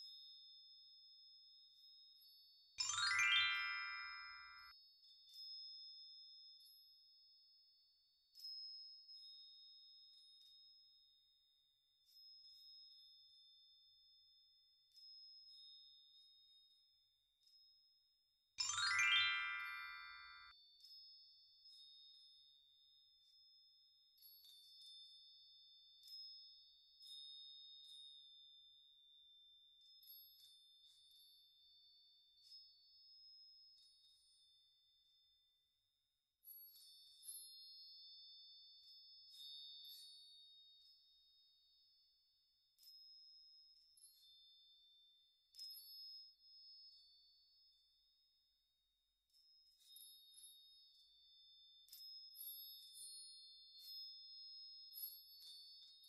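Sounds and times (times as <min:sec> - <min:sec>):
chiming background music: 0:00.0 - 0:07.3, 0:18.6 - 0:22.4, 0:24.2 - 0:34.2, 0:36.5 - 0:40.9, 0:42.8 - 0:47.8, 0:49.3 - 0:56.0
rising chime sparkle effect: 0:02.8 - 0:04.7, 0:18.6 - 0:20.6.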